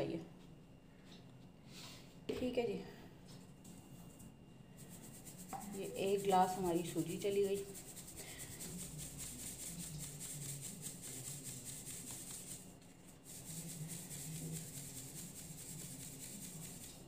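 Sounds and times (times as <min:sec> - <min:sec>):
semolina rustling through sieve: 0:03.6 - 0:17.0.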